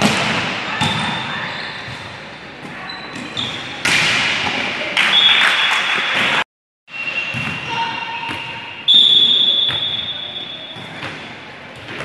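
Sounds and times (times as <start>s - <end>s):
volleyball slaps and thuds: 3.2s - 4.7s.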